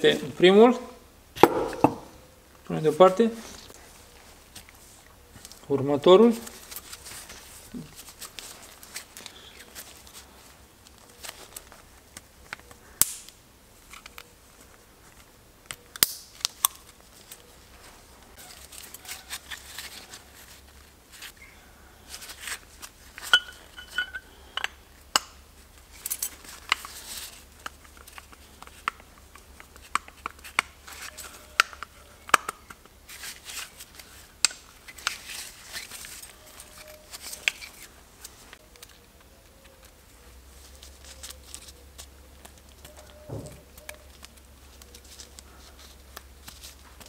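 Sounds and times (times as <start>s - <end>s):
metal parts clicking and clinking: 23.1s - 24.8s, 25.9s - 28.9s
short metallic ring: 23.4s - 24.3s.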